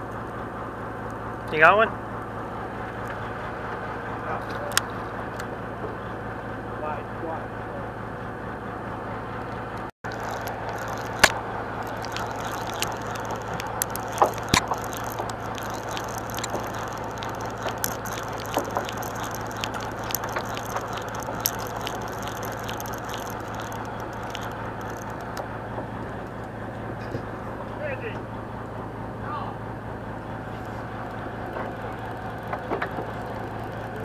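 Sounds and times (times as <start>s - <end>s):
boat engine hum: 0.0s - 34.0s
water washing: 10.0s - 26.4s
fishing reel clicks and knocks: 10.2s - 25.4s.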